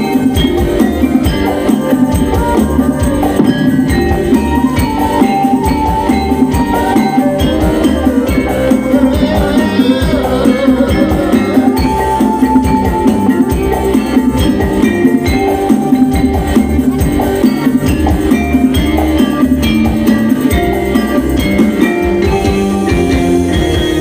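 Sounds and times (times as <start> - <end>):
hand drums beating: 0.0 - 24.0
live band music: 0.0 - 24.0
melodic instruments: 0.0 - 24.0.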